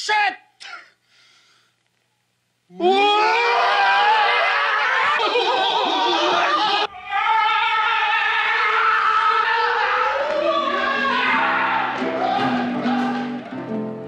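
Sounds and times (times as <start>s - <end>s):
men yelling in panic: 2.8s - 13.5s
people screaming: 2.8s - 13.7s
plucked acoustic guitar: 11.4s - 14.0s.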